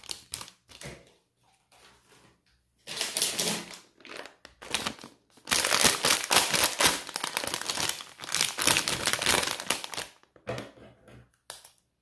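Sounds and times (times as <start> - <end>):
plastic packet crinkling: 0.0 - 0.9, 2.9 - 10.4.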